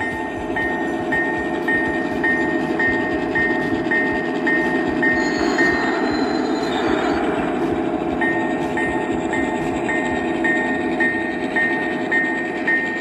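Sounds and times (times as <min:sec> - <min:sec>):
model train engine rumble: 0:00.0 - 0:13.0
short bell-like ding: 0:03.4 - 0:07.2.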